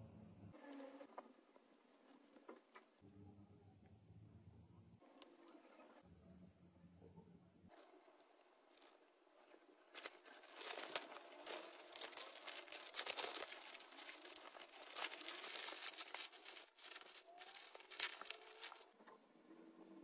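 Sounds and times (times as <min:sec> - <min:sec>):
bubble wrap crinkling and rustling: 0:09.9 - 0:18.9.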